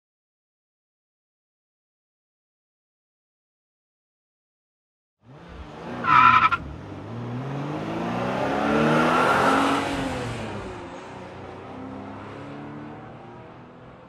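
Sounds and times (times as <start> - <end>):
road and wind noise: 5.2 - 14.0.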